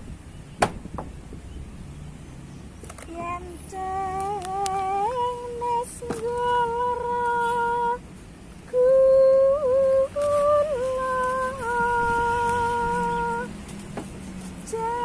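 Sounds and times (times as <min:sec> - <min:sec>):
faint clicks: 0:04.2 - 0:06.5.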